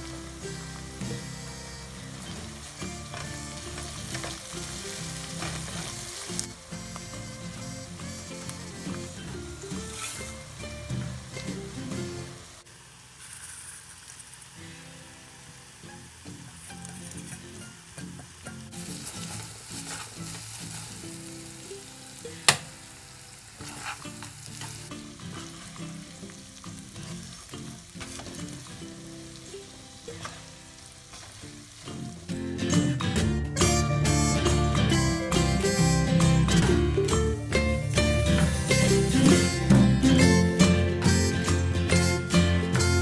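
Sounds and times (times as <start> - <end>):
music: 0.0 - 12.7, 14.6 - 43.0
food sizzling in oil: 0.0 - 43.0
wooden spatula scraping wok: 1.3 - 12.0, 18.8 - 21.1, 23.6 - 29.5, 30.2 - 32.1.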